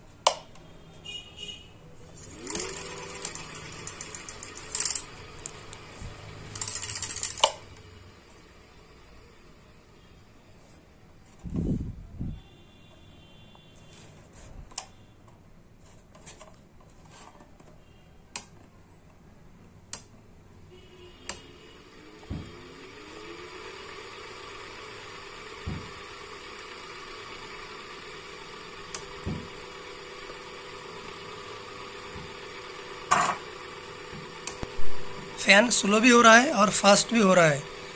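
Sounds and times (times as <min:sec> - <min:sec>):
fan air whoosh: 0:11.4 - 0:12.4.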